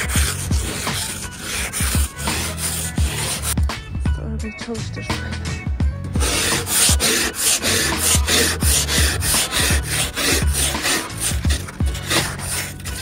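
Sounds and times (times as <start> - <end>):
scraper rasping frost off windscreen: 0.0 - 3.6, 6.2 - 13.0.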